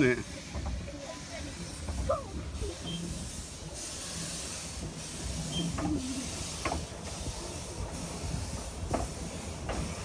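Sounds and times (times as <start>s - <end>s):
steam locomotive chuffing: 0.0s - 10.0s
train rumble: 0.0s - 10.0s
train knocks: 0.4s - 1.0s, 4.7s - 10.0s.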